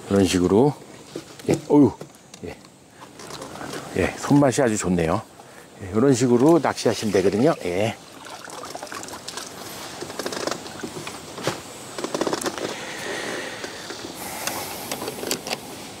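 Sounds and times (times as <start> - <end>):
water dripping and trickling: 6.5 - 9.6.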